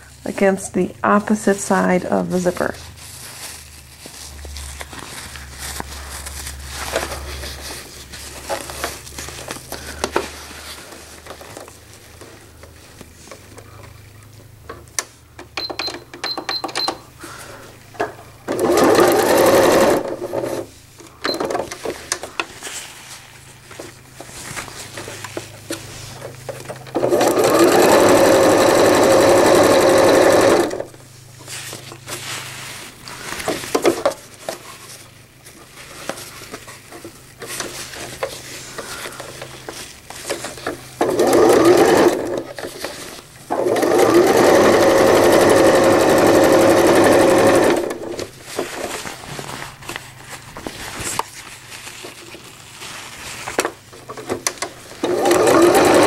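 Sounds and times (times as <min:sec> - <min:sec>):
sewing machine stitching: 0:18.5 - 0:20.7, 0:26.9 - 0:30.9, 0:41.0 - 0:42.5, 0:43.5 - 0:48.3, 0:55.0 - 0:56.0.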